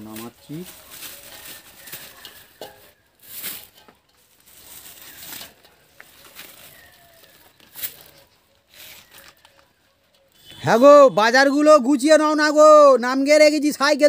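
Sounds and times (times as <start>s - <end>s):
groceries knocking and clattering: 0.0s - 9.8s
paper and plastic rustling: 0.0s - 10.3s.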